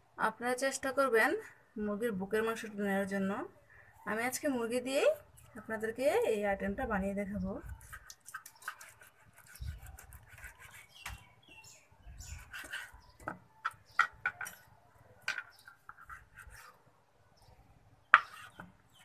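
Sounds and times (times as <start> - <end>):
bird calls: 7.7 - 19.0
knife slicing raw chicken: 7.8 - 11.2.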